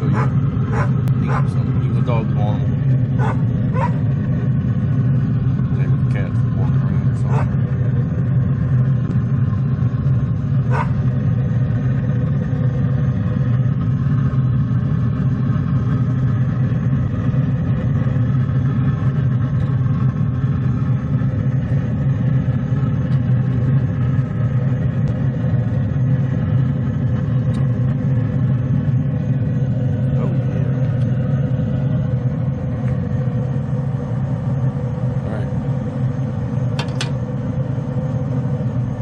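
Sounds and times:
fan running with low hum: 0.0s - 39.0s.

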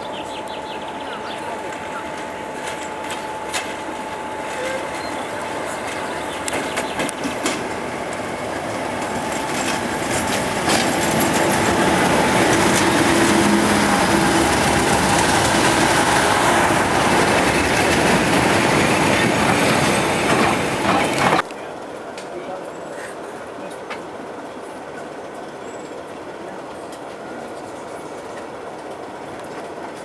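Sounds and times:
diesel locomotive engine passing: 0.0s - 30.0s
coaches rushing past on rails: 0.2s - 22.6s.

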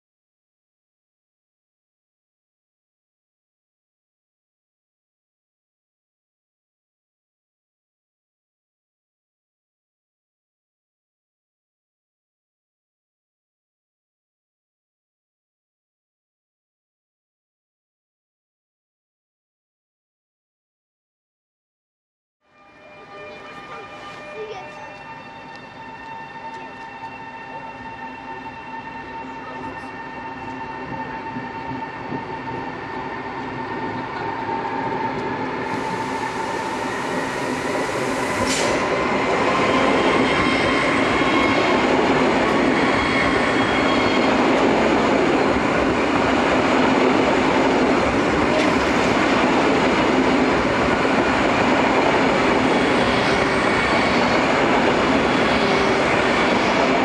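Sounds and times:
train rolling noise: 22.6s - 57.0s.

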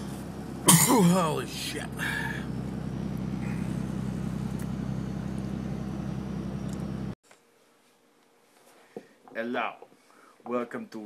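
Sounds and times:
vehicle engine and road noise: 0.0s - 7.2s.

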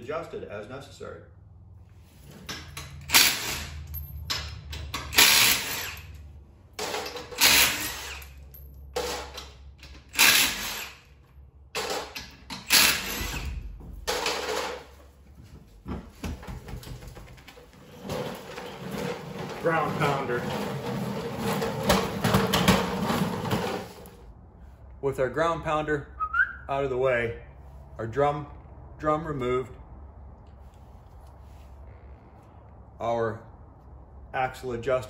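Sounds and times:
impact wrench bursts: 2.6s - 6.2s, 6.8s - 14.8s.

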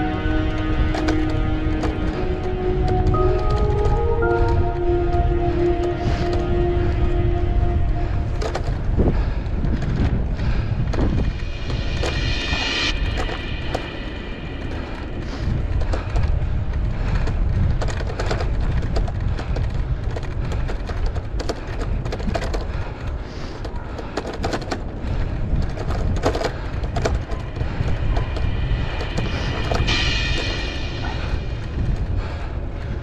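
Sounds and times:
wind on microphone: 0.0s - 33.0s
bicycle rattling and clicking: 8.0s - 12.2s, 14.7s - 33.0s.

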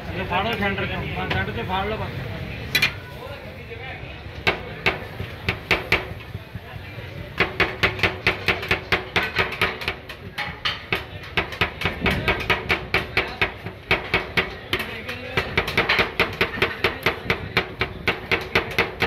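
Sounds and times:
metal spatulas chopping on steel pan: 4.4s - 6.3s, 7.3s - 19.0s.

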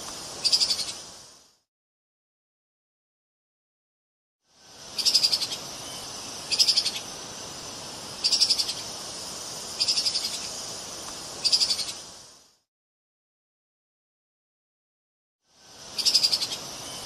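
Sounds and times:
steady high hiss: 0.0s - 1.7s, 4.4s - 12.7s, 15.4s - 17.0s.

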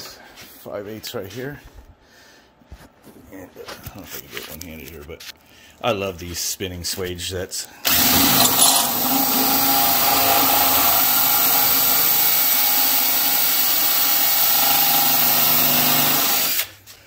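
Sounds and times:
power drill spinning: 7.8s - 16.8s.

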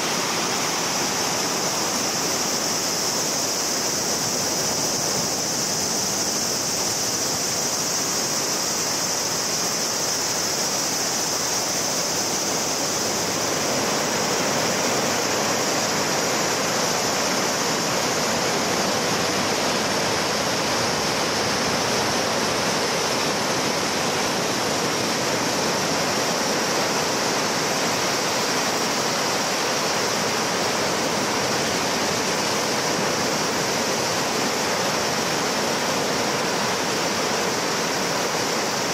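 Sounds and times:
cicadas droning: 0.0s - 38.9s.

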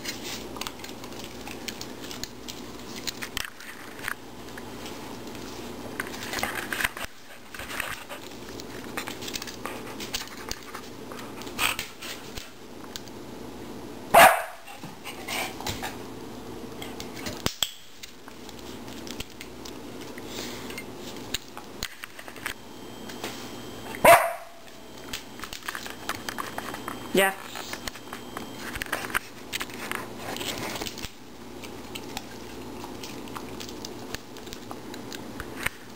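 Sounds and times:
dog barking: 14.1s - 14.7s, 24.0s - 24.6s.

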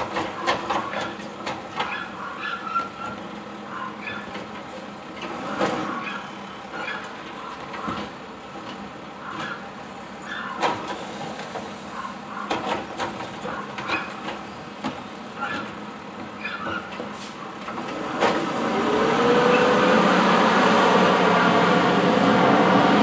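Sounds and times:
trash cart and arm clanking: 0.0s - 9.7s, 12.4s - 18.7s.

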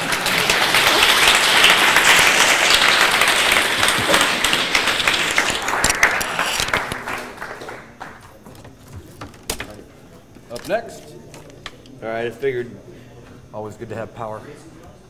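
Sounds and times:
audience applauding: 0.0s - 8.5s.

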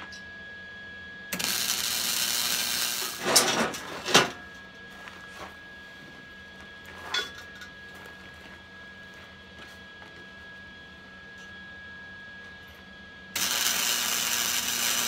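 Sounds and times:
welder arc hissing and crackling: 1.3s - 3.9s, 13.3s - 15.0s.

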